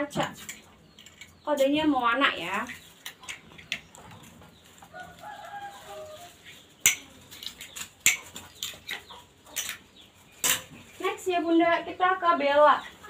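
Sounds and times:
rooster crowing: 4.9s - 6.4s.

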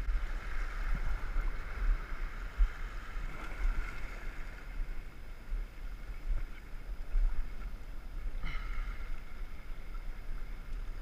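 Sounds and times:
sea water washing among rocks: 0.0s - 5.1s
wind rumbling on microphone: 0.0s - 11.0s.

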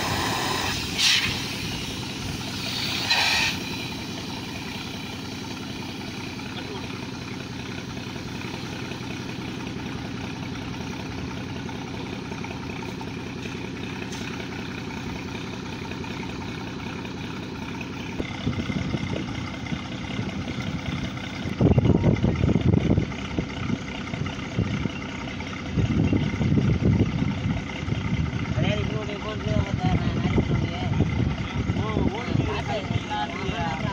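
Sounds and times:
compressed air rushing surges: 0.0s - 4.3s
air compressor engine running: 0.0s - 33.9s.

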